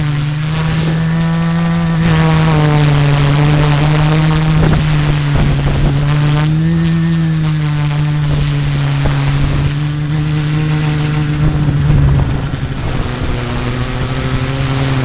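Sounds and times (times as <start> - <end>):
drone motors buzzing: 9.5 - 13.4.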